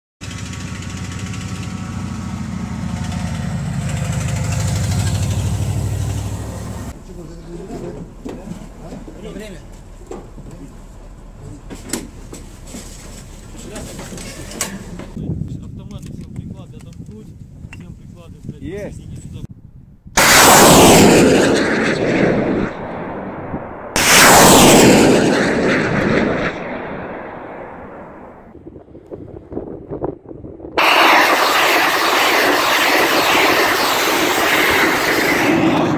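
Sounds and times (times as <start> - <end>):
diesel truck engine rumble: 0.2 - 15.2
rocket launch roar: 0.3 - 7.0, 20.2 - 28.6, 30.8 - 35.9
rocket launch blast: 20.2 - 28.6, 30.8 - 35.9.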